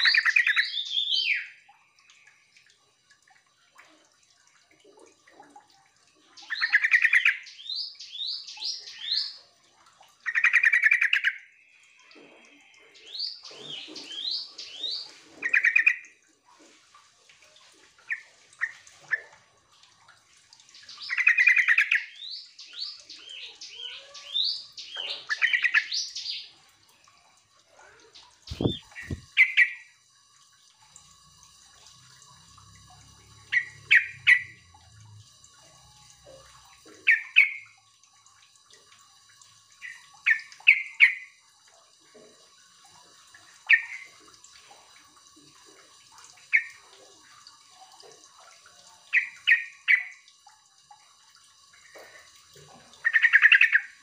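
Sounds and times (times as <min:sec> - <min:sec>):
bird warbling song: 0:00.0 - 0:01.6, 0:20.8 - 0:26.5, 0:28.2 - 0:29.9, 0:33.5 - 0:34.6, 0:37.0 - 0:37.6, 0:49.1 - 0:50.2, 0:53.0 - 0:54.0.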